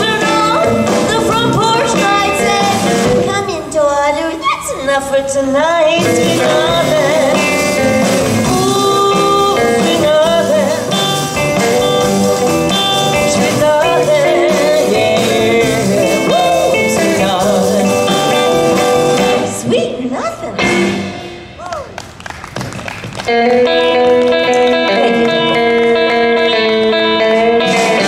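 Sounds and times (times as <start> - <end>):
woman singing: 0.0 - 11.1, 13.0 - 20.2
rockabilly band playing: 0.0 - 28.0.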